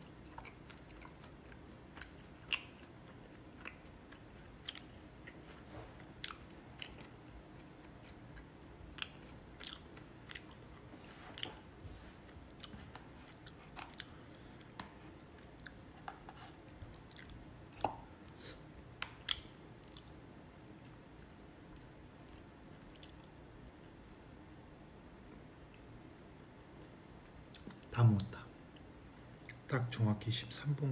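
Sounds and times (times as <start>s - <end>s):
person chewing: 0.0s - 23.7s
faint room hum: 0.0s - 30.9s.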